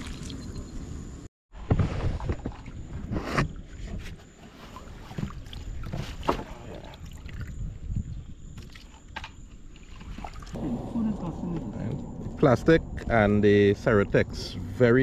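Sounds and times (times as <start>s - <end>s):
wind rumble on microphone: 6.7s - 9.0s, 9.6s - 15.0s
water sloshing: 8.5s - 11.5s.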